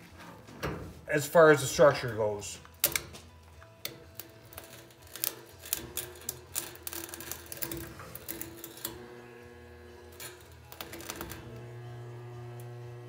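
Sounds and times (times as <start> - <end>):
spot welder clicks and snaps: 2.6 - 9.2, 10.0 - 13.0
spot welder buzzing: 3.8 - 13.0.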